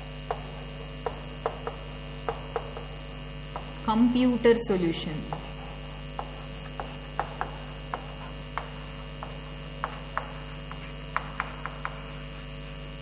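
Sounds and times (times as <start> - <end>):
electrical hum: 0.0 - 13.0
chalk tapping on chalkboard: 0.3 - 3.0, 6.2 - 12.2.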